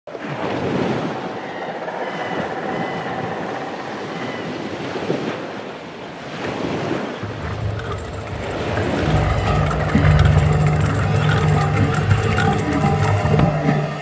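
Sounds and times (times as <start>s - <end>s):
wind: 0.1s - 14.0s
surf washing on shore: 3.8s - 9.1s.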